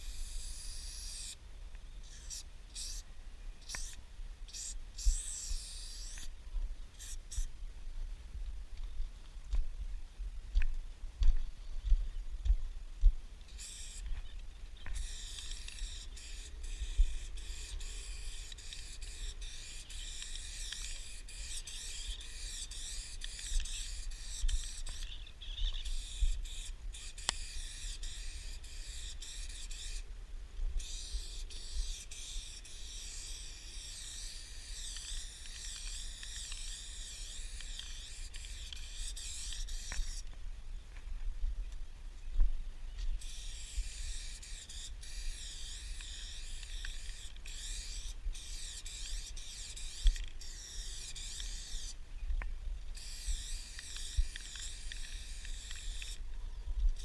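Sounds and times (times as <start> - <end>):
spray-paint can hissing: 0.0 - 1.4, 2.1 - 3.0, 3.7 - 6.3, 7.0 - 7.5, 13.6 - 14.0, 15.0 - 25.1, 25.9 - 30.0, 30.8 - 40.2, 43.2 - 52.0, 53.0 - 56.2.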